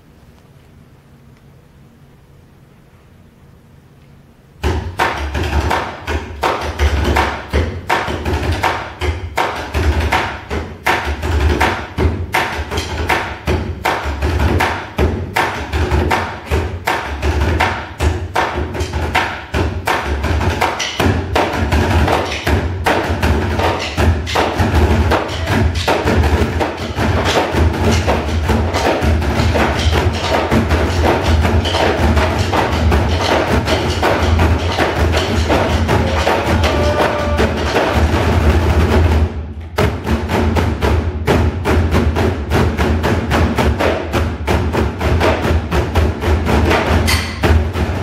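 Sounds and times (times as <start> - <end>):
barrel drums drumming: 4.6 - 48.0.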